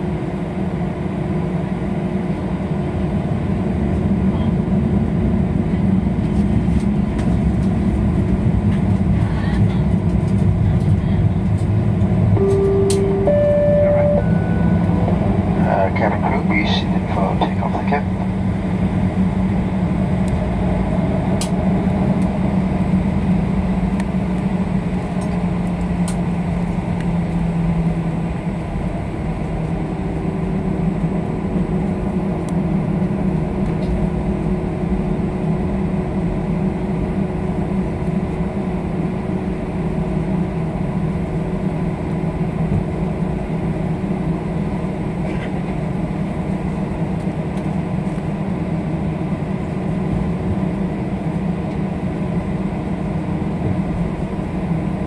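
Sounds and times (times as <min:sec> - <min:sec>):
jet engines humming: 0:10.3 - 0:55.0
high steady tone: 0:12.4 - 0:16.2.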